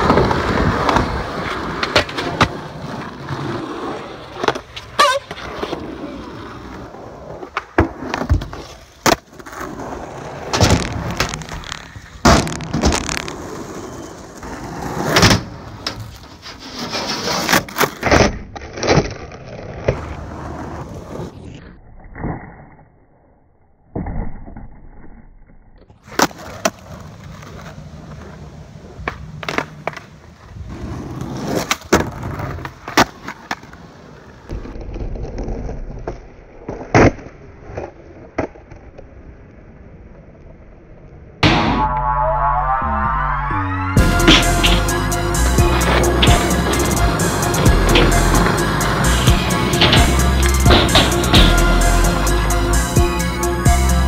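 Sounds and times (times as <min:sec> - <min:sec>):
skateboard popping and landing: 0:00.0 - 0:22.8, 0:23.8 - 0:39.6, 0:47.8 - 0:51.8
skateboard wheels rolling on concrete: 0:00.0 - 0:23.3, 0:24.0 - 0:41.4, 0:44.0 - 0:54.0.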